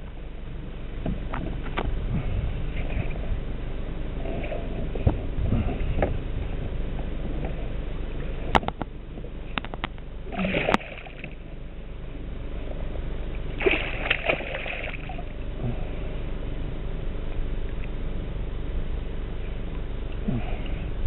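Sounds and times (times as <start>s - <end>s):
fish splashing in water: 10.3s - 11.4s, 13.6s - 15.4s.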